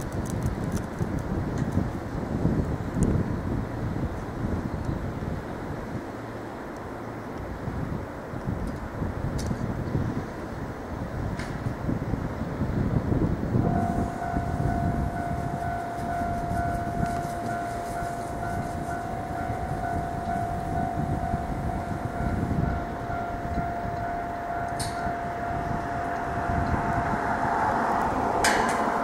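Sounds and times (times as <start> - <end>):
low rumble: 13.4 - 29.0
steady high-pitched tone: 13.6 - 29.0.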